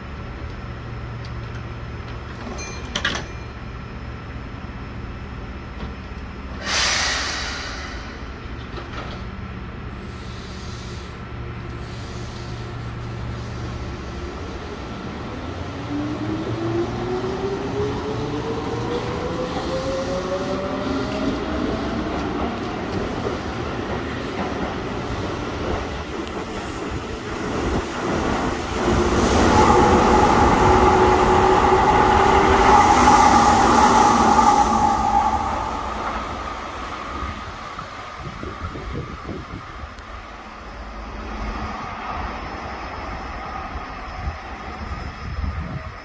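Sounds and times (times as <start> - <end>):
train click: 1.2 - 3.4, 8.5 - 9.4, 22.0 - 28.3
loud hiss: 6.6 - 8.4
electric train humming: 11.3 - 46.0
train motor whine rising: 28.5 - 40.0.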